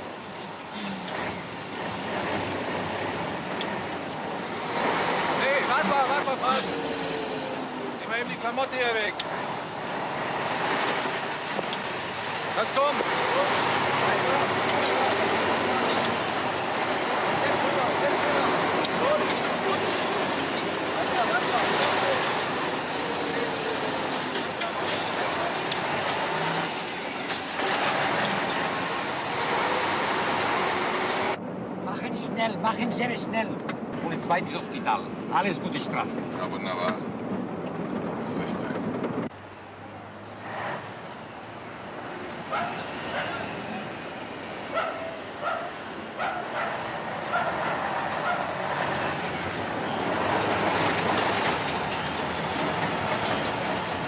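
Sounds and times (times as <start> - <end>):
truck diesel engine driving off: 9.2 - 31.4
truck diesel engine pulling away: 40.1 - 54.0
dog barking: 42.5 - 43.4, 44.7 - 48.6.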